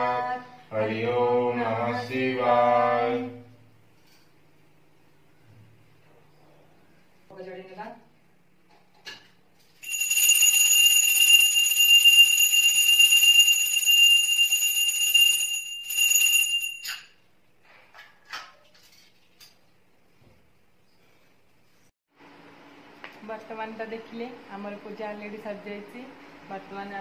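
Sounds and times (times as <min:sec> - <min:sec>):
hand bell ringing: 0:09.8 - 0:17.1.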